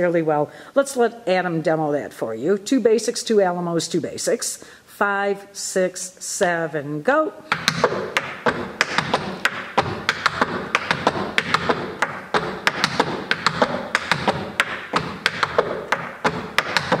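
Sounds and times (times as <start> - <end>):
clogging shoes on wooden board: 7.5 - 17.0.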